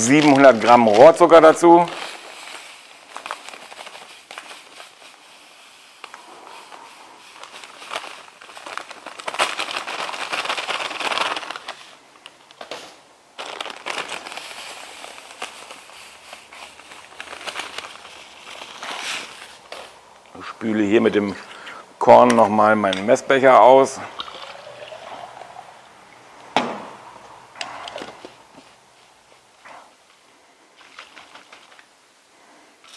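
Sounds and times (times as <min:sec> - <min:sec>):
plastic packet crinkling: 0:00.0 - 0:21.8, 0:22.6 - 0:26.4, 0:30.8 - 0:31.9.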